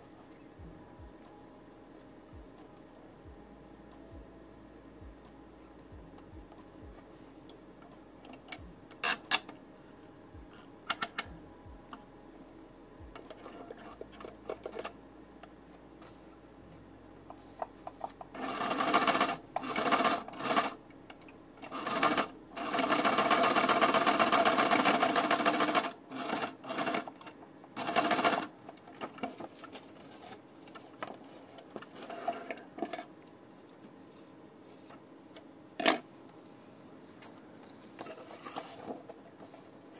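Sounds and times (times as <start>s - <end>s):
sewing machine stitching paper: 18.3s - 20.8s, 21.6s - 27.2s, 27.8s - 28.5s.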